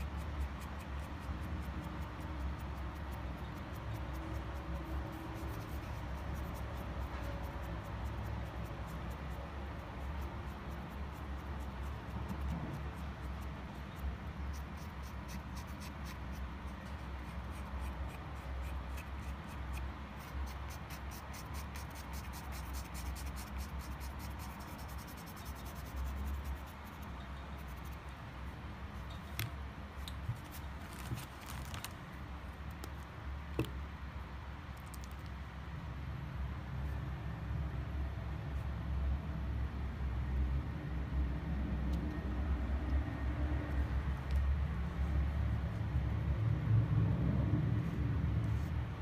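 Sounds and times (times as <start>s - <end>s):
marker scratching on stone: 0.0s - 28.2s, 29.0s - 31.9s.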